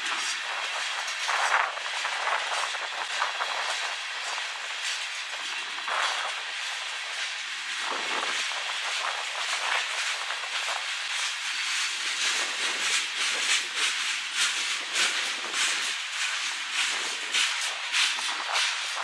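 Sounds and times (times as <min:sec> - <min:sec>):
freight train wheels rolling: 0:00.1 - 0:19.0.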